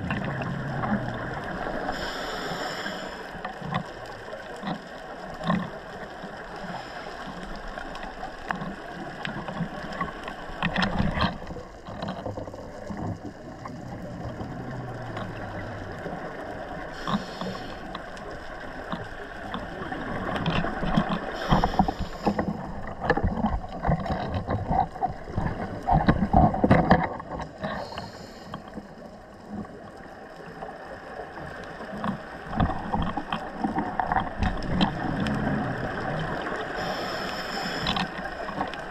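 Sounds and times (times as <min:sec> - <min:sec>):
underwater bubbling: 0:00.0 - 0:38.9
regulator breathing hiss: 0:01.8 - 0:03.4, 0:16.9 - 0:17.9, 0:21.3 - 0:22.6, 0:27.7 - 0:28.7, 0:36.6 - 0:38.0.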